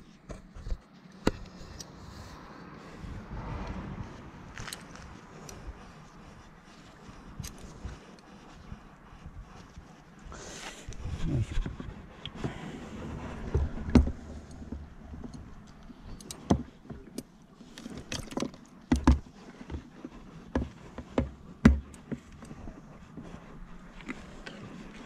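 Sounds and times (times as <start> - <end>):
knocks and scrapes in plastic box: 11.3 - 15.3, 17.8 - 23.3.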